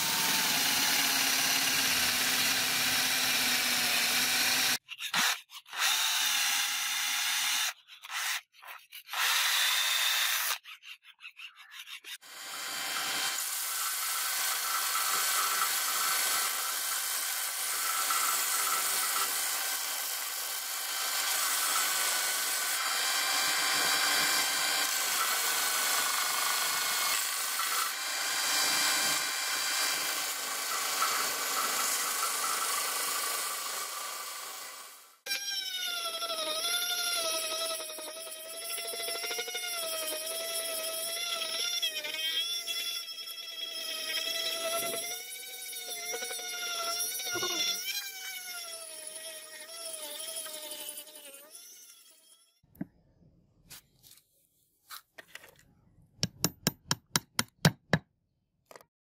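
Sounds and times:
electric drill boring through wood: 0:00.0 - 0:10.6, 0:12.2 - 0:52.6
belt sander grinding: 0:12.2 - 0:35.0.

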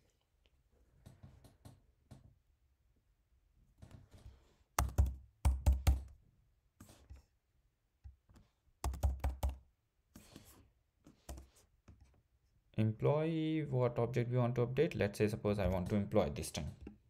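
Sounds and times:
keyboard typing: 0:04.8 - 0:06.1, 0:08.8 - 0:09.6.

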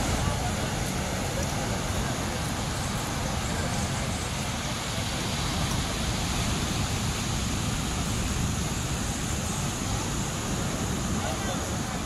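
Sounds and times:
surf washing: 0:00.0 - 0:12.0.

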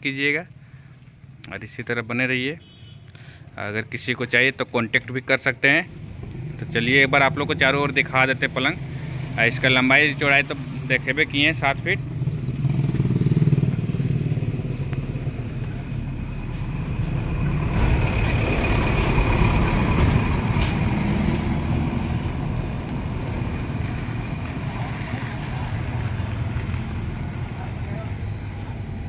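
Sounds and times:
road traffic rumbling: 0:00.0 - 0:29.0
vehicle passing by: 0:06.0 - 0:29.0.

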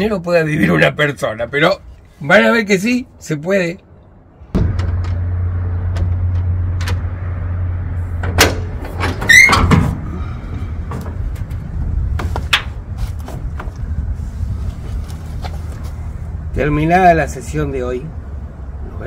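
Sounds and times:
knocks and thumps of climbing: 0:08.2 - 0:13.9
door hinge squeak: 0:09.0 - 0:09.9
steady low rumble: 0:09.9 - 0:19.0.

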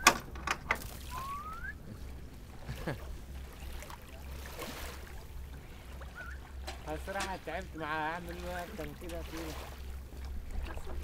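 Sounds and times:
water lapping against hull: 0:00.0 - 0:11.0.

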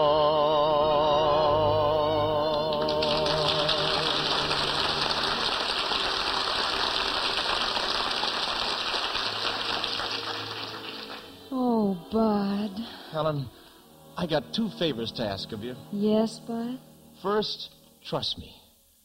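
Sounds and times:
orchestra playing: 0:00.0 - 0:15.9
audience applause: 0:02.5 - 0:11.5.

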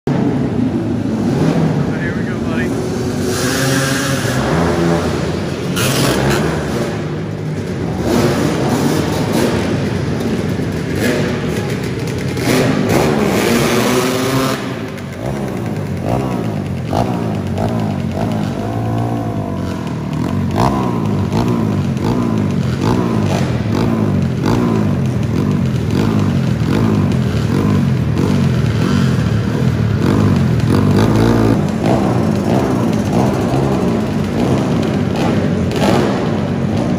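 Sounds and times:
three-wheeler engines revving: 0:00.1 - 0:36.9.

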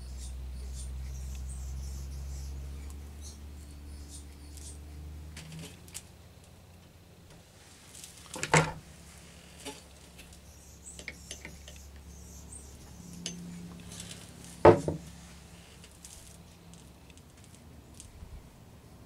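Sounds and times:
hard objects clacking on wooden table: 0:14.6 - 0:15.0.

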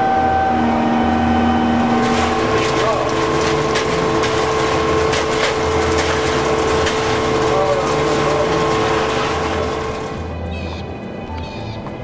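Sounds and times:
concrete pump engine whine: 0:00.0 - 0:10.4.

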